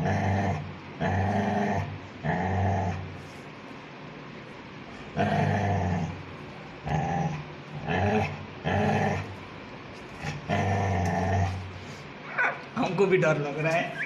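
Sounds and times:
puppy growling: 0:00.0 - 0:03.3, 0:05.1 - 0:09.4, 0:10.2 - 0:11.8.

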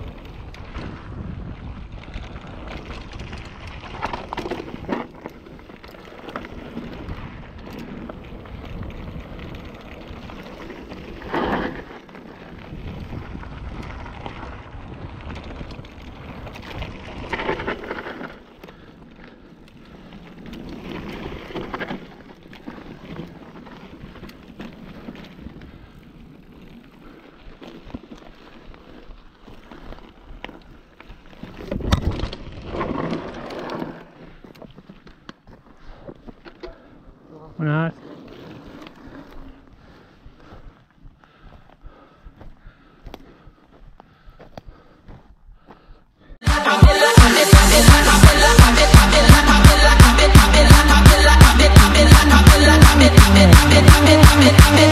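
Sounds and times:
wind rush on microphone: 0:00.0 - 0:04.1, 0:12.4 - 0:17.3
bike rattling: 0:00.0 - 0:42.6, 0:47.5 - 0:54.9
bike tyres on gravel: 0:00.0 - 0:54.9.

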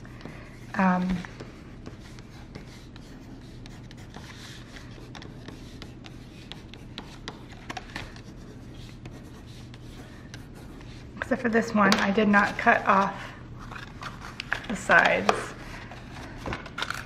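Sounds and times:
pencil scratching on paper: 0:00.0 - 0:11.4.

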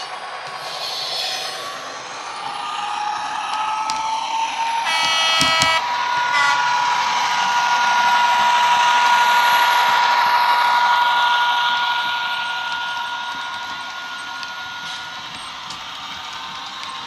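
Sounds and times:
model locomotive engine whine: 0:00.0 - 0:17.0
locomotive horn: 0:04.8 - 0:06.6.

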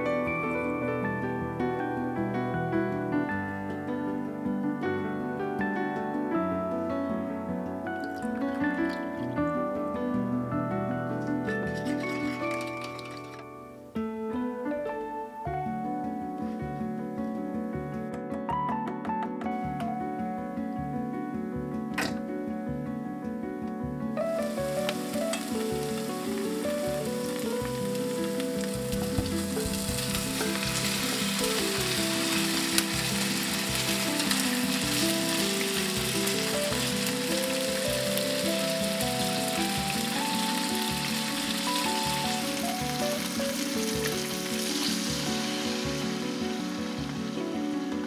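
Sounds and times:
background music: 0:00.0 - 0:48.0
chopsticks turning chicken: 0:11.3 - 0:13.4, 0:24.6 - 0:38.3
chicken sizzling in hot oil: 0:11.4 - 0:13.4, 0:24.2 - 0:48.0.

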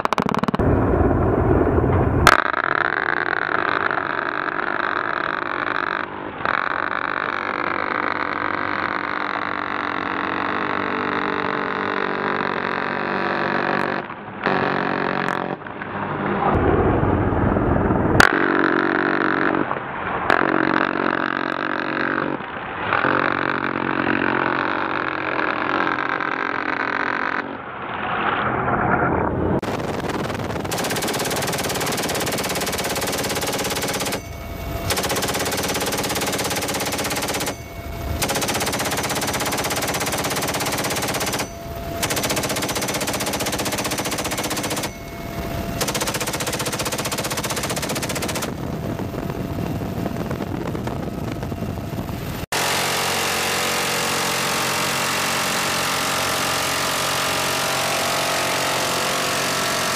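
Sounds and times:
machine guns firing rapidly: 0:29.6 - 0:48.6.

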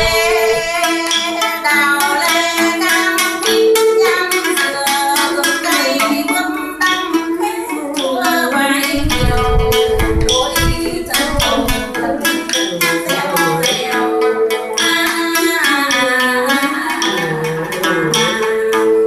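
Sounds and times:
plucked lute: 0:00.0 - 0:19.0
woman singing: 0:00.0 - 0:19.0
deep thumps: 0:09.0 - 0:12.2.

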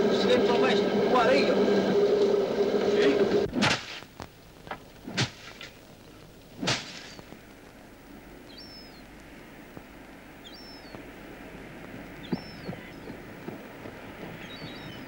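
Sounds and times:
faint outdoor background: 0:00.0 - 0:15.0
wooden flails beating dried crop: 0:03.5 - 0:07.8
small bird chirping: 0:08.5 - 0:09.1, 0:10.4 - 0:11.0, 0:12.2 - 0:13.2, 0:14.3 - 0:15.0.

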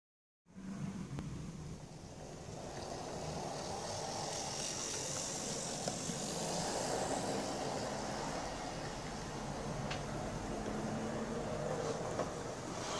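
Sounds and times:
wheels rolling on rails: 0:00.7 - 0:12.9
model train motor whirring: 0:02.0 - 0:10.0.

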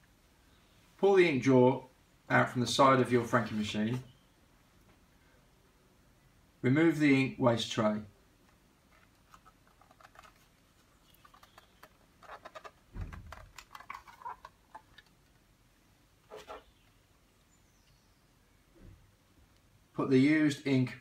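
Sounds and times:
plastic tray clicks and scrapes: 0:08.9 - 0:10.5, 0:11.1 - 0:15.4.

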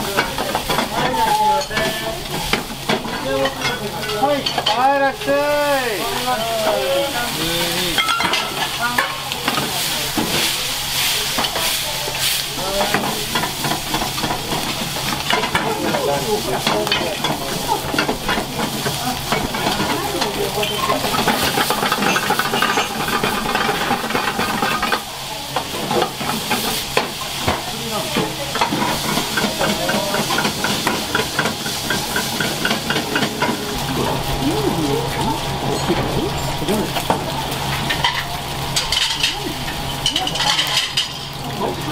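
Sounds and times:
food sizzling in a frying pan: 0:00.0 - 0:41.9
metal utensils scraping a pan: 0:06.2 - 0:33.8, 0:37.8 - 0:41.4.

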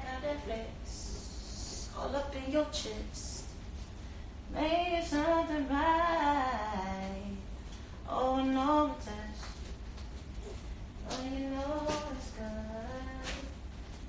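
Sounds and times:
woman singing unaccompanied: 0:00.0 - 0:03.5, 0:04.5 - 0:07.5, 0:08.1 - 0:09.6, 0:11.0 - 0:13.6.

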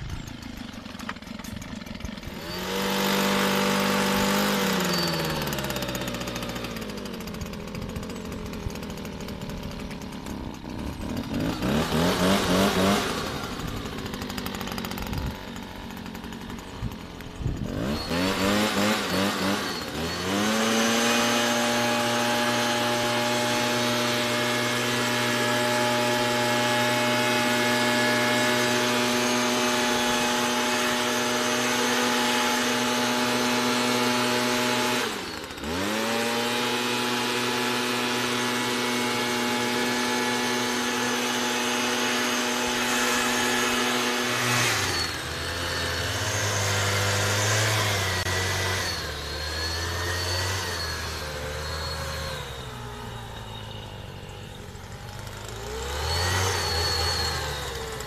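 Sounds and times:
two-stroke mist blower engine: 0:00.0 - 0:58.0.

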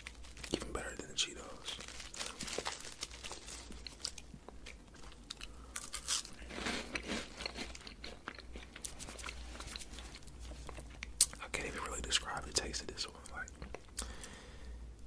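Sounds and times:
crunching and chewing snack: 0:01.5 - 0:11.4.

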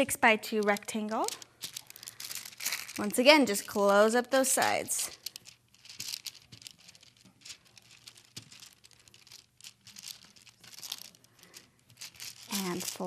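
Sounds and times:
parchment paper crinkling: 0:00.0 - 0:13.0.

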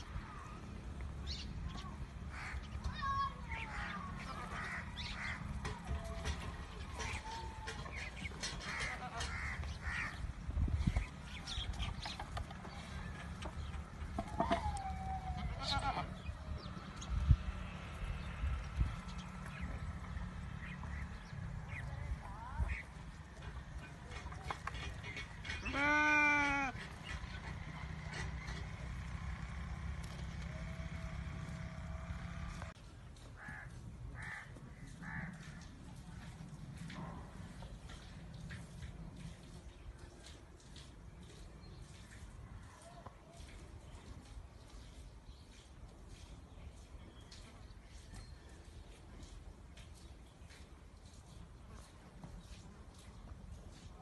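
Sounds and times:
crow cawing: 0:02.3 - 0:02.7, 0:33.4 - 0:35.6
goat bleating: 0:15.4 - 0:16.2, 0:25.6 - 0:26.8.

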